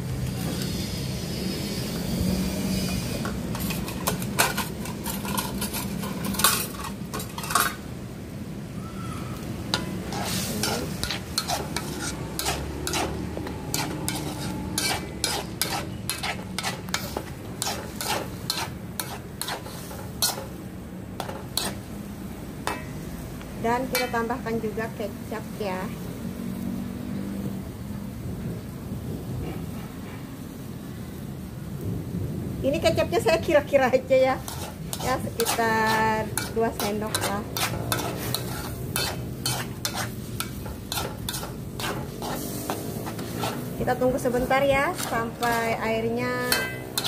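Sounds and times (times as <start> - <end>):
faint sizzle: 0.0 - 47.0
utensil clinking against wok: 2.8 - 7.9, 9.7 - 20.6, 21.2 - 21.8, 22.6 - 23.1, 23.7 - 24.3, 34.4 - 47.0.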